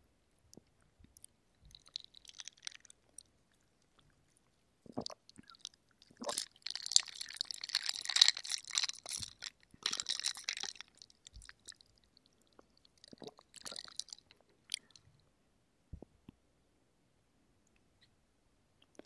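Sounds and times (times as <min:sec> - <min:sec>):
slurping through a straw: 0:04.8 - 0:11.8, 0:12.5 - 0:15.0.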